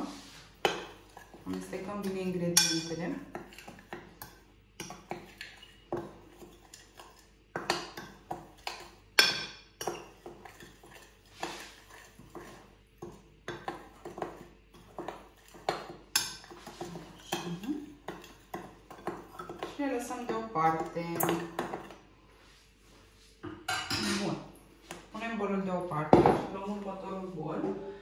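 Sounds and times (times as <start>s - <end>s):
spoon clinking against mixing bowl: 0.6s - 21.9s.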